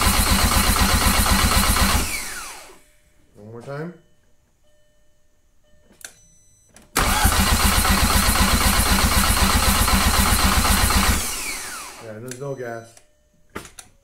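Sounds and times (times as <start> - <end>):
car starter motor cranking engine: 0.0 - 2.8, 7.0 - 12.2
starter winding down whine: 0.0 - 2.8, 7.0 - 12.1.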